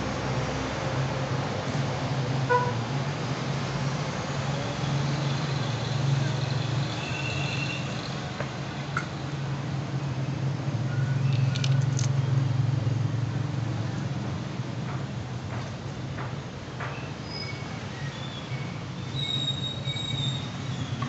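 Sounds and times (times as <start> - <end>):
small steel tools clicking: 11.3 - 12.1.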